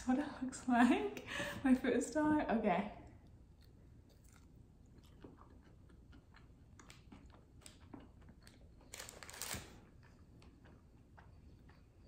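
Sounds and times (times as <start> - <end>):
person chewing crunchy food: 3.3 - 12.0.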